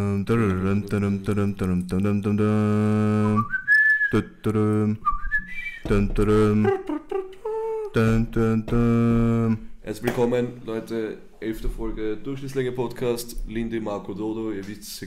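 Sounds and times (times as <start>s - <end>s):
man humming low chant: 0.0s - 3.4s, 4.2s - 5.1s, 5.8s - 9.7s
rising whistles: 3.2s - 4.2s, 5.0s - 5.9s.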